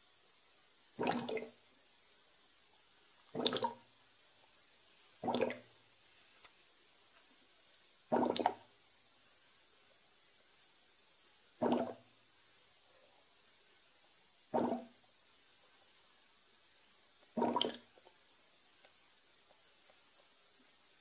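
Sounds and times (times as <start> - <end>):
airlock bubbling: 1.0 - 1.6, 5.2 - 5.7, 8.1 - 8.6, 14.5 - 15.0, 17.4 - 17.8.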